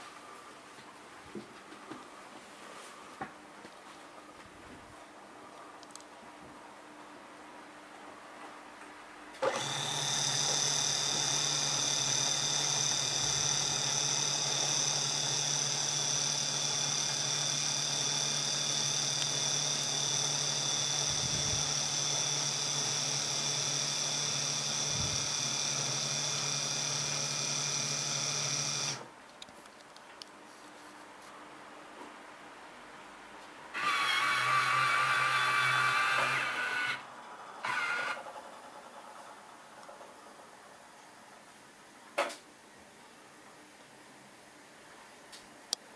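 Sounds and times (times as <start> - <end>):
small electric motor whirring: 9.4 - 29.0, 33.8 - 38.4.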